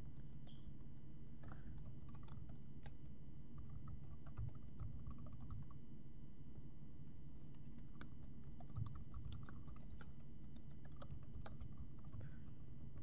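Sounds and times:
low background hum: 0.0s - 13.0s
keyboard typing: 1.4s - 5.8s, 7.6s - 13.0s.

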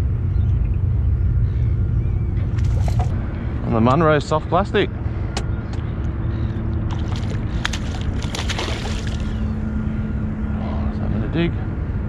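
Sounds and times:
fish splashing on water surface: 6.9s - 9.5s.

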